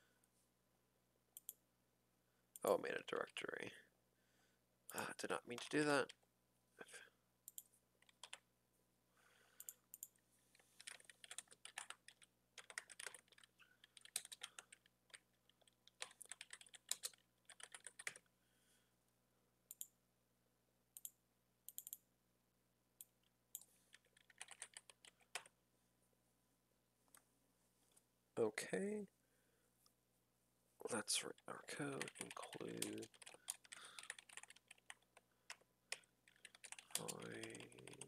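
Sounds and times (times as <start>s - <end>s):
faint computer keyboard typing: 1.4s - 1.6s, 4.9s - 6.2s, 7.5s - 8.4s, 9.6s - 18.3s, 19.7s - 19.9s, 21.0s - 22.0s, 23.0s - 25.6s, 31.4s - 38.0s.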